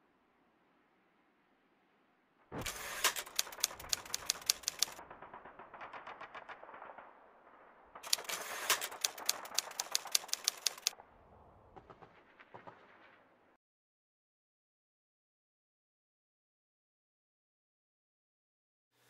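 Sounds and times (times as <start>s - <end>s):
typewriter keys clacking: 2.7s - 5.0s, 8.1s - 10.9s.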